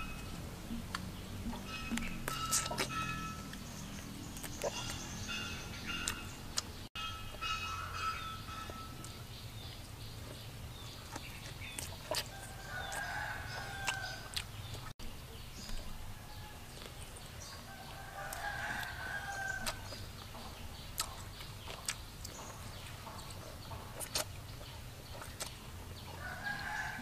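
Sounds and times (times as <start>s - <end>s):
drawn-out animal calls: 0.0s - 6.3s
low steady hum: 0.0s - 26.2s.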